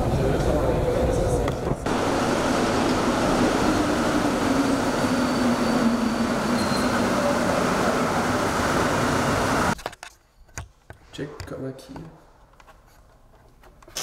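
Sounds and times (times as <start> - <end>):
metro train arriving: 0.0 - 9.8.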